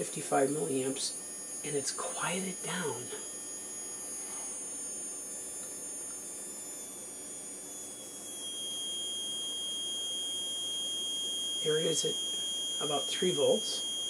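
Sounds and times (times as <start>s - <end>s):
small electric motor whining: 0.0s - 14.0s
low whistling tone: 8.2s - 14.0s.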